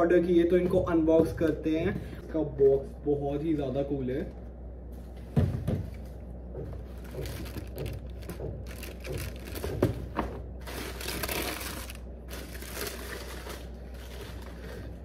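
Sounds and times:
cardboard box knocks: 6.6 - 10.4
tissue paper rustling: 10.6 - 15.0.

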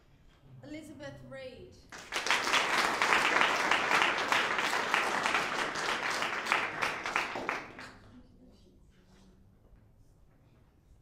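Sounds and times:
audience applauding: 1.9 - 8.1.

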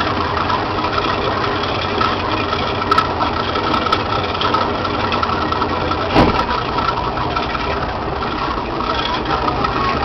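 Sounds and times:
boat motor humming: 0.0 - 10.0
thud: 6.1 - 6.6.

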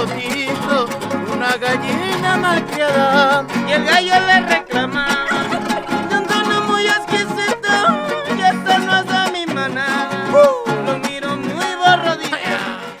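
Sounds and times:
strummed guitar rhythm: 0.0 - 13.0
violin melody with slides: 3.4 - 9.6.

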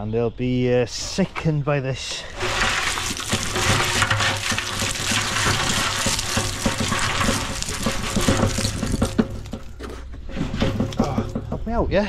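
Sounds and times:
rubble pouring from mixer drum: 2.2 - 11.7.

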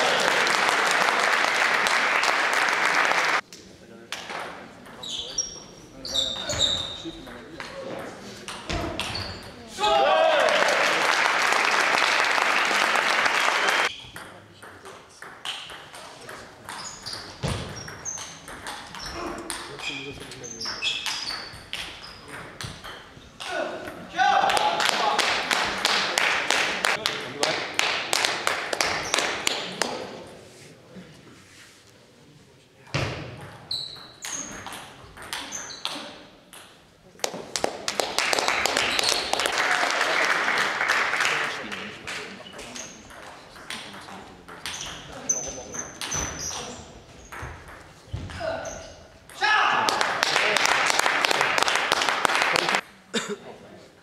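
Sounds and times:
clapping and cheering: 0.0 - 3.4, 10.1 - 13.9, 24.2 - 29.5, 37.6 - 42.2, 49.8 - 52.8
table tennis ball hits: 14.2 - 23.6, 33.0 - 37.8, 43.1 - 45.1.

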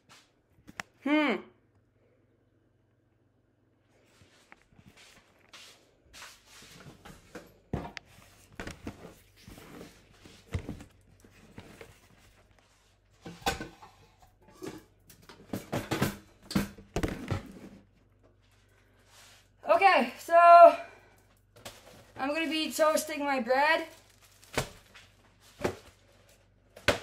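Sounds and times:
food packages being handled: 23.8 - 27.0.

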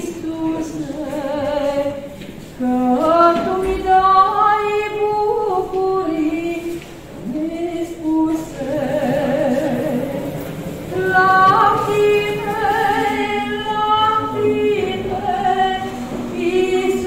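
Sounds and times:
woman singing a hymn: 0.0 - 17.0.

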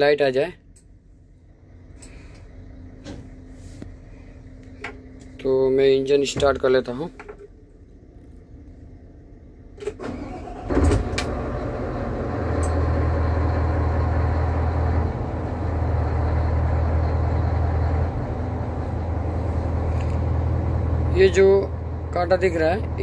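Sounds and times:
diesel engine starting and idling: 9.2 - 23.0.

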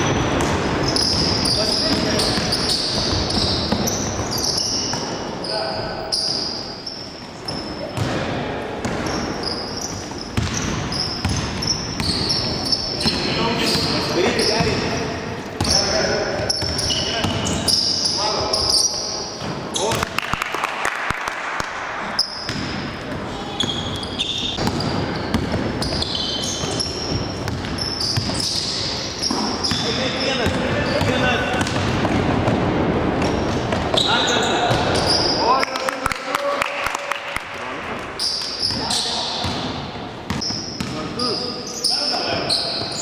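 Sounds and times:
sneakers squeaking: 0.0 - 20.2, 22.0 - 35.6, 38.0 - 43.0
basketball bouncing: 0.1 - 5.2, 10.0 - 13.9, 22.4 - 23.9, 24.5 - 34.1
basketball bouncing on hardwood floor: 10.4 - 12.3, 26.6 - 28.4, 30.4 - 33.9.

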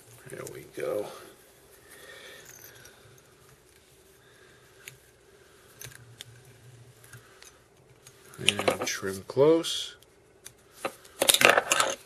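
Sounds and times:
steady low hum: 0.0 - 12.0
thread wrapping noise: 0.0 - 12.0.

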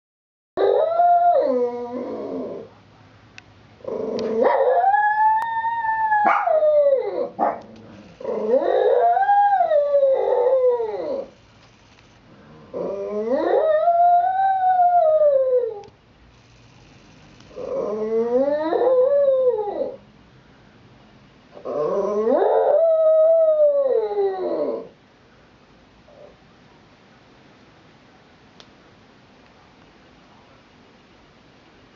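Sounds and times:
dog howling: 3.9 - 11.3, 12.7 - 15.9, 17.6 - 20.0, 21.6 - 24.9.

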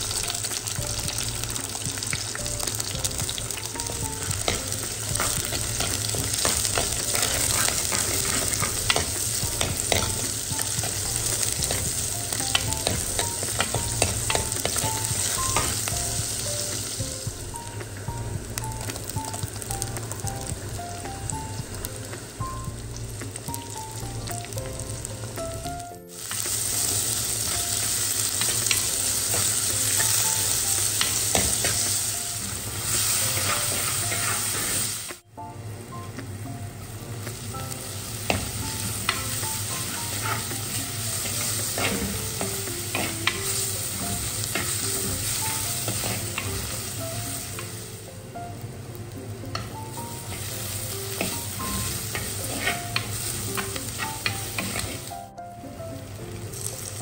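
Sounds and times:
onions sizzling in hot oil: 0.0 - 57.0
spoon scraping a pot: 52.1 - 55.1.

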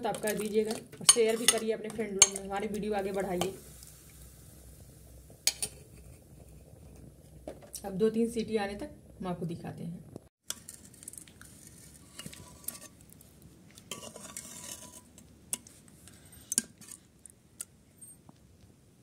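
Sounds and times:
metal spoon scraping a pot: 0.0 - 3.6, 10.5 - 13.0, 13.9 - 17.1.

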